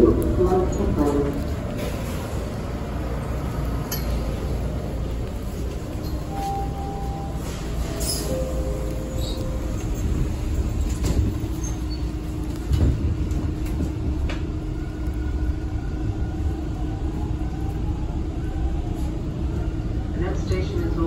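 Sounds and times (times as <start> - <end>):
subway train rumble and hum: 0.0 - 21.0.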